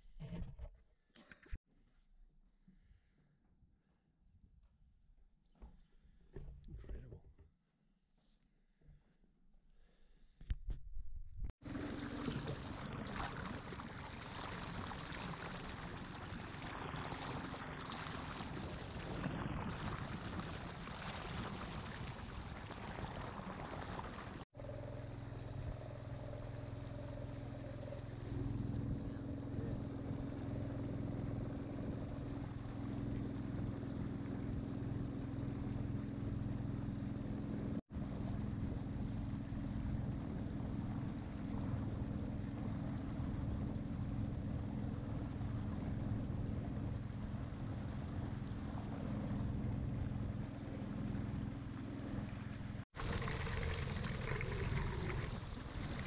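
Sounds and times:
boat motor humming: 11.6s - 56.0s
water rushing along hull: 11.6s - 56.0s.

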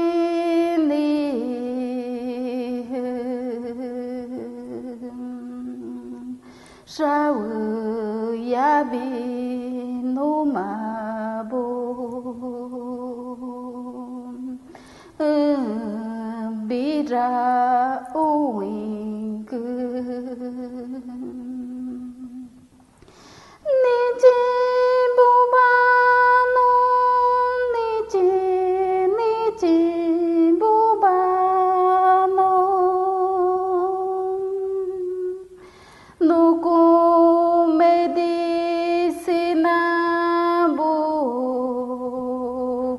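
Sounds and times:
woman humming a chant: 0.0s - 22.6s.

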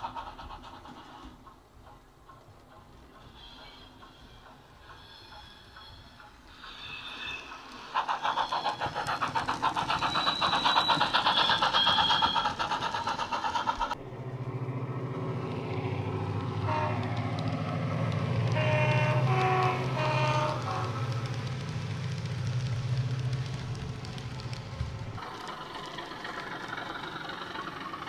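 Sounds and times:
fast rhythmic pulsing: 7.7s - 14.0s
locomotive horn notes: 16.6s - 17.3s, 18.5s - 21.0s.

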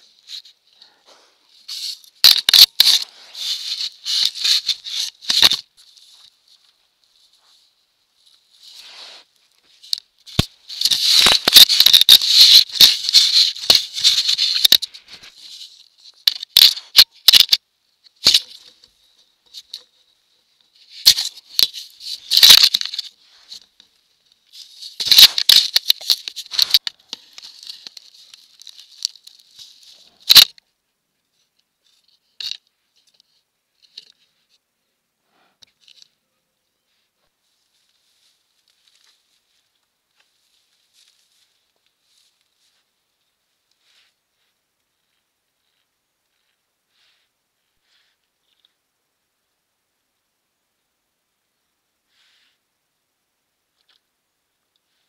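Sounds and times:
rustling and crackling: 0.0s - 30.6s, 36.9s - 48.8s
faint high-pitched whine: 0.0s - 55.0s.

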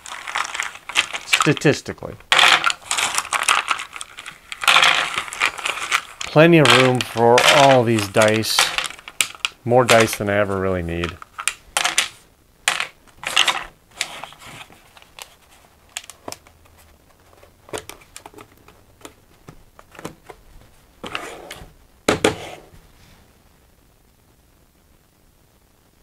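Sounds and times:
dice and wood clattering: 0.0s - 16.4s.

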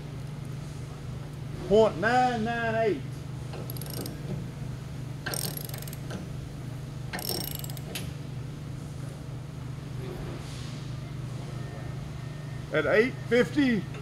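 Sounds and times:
ratchet wrench clicking: 3.6s - 4.2s, 5.3s - 6.1s, 7.2s - 8.0s.

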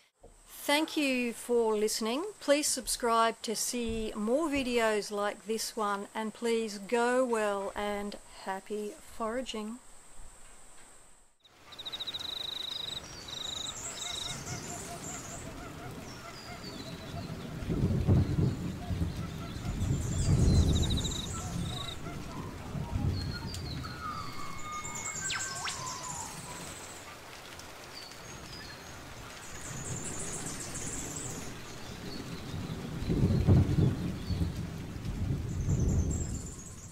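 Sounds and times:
birds chirping and trilling: 11.7s - 27.0s, 28.0s - 34.6s
whistled bird calls: 11.8s - 17.4s, 18.2s - 27.0s
wind gusts on microphone: 14.4s - 26.8s, 29.6s - 36.9s.

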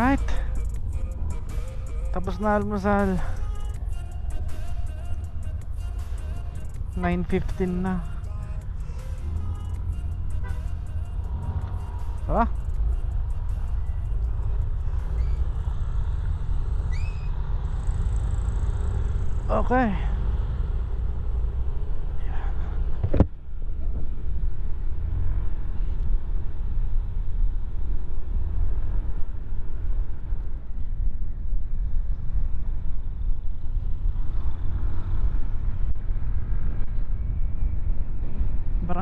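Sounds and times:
motor scooter running: 14.4s - 21.7s
wind rumble on microphone: 19.0s - 39.0s.

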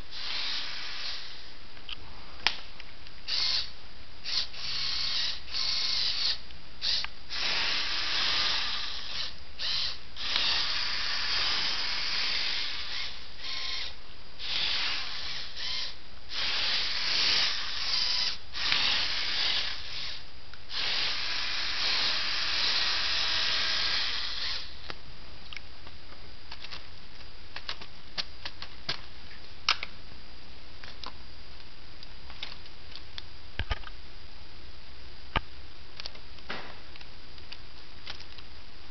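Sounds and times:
toy motors and gears whirring: 0.1s - 1.5s, 3.3s - 24.9s.

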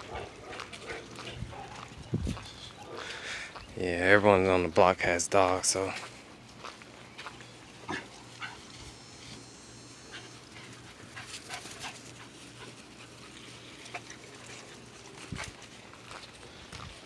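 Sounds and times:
puppies panting: 0.0s - 3.7s, 7.2s - 17.0s.

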